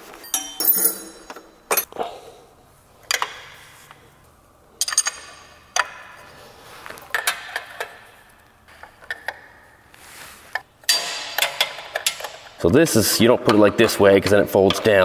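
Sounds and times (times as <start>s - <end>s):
metal hardware clinking: 0.2s - 1.9s, 4.8s - 6.2s, 10.8s - 12.6s.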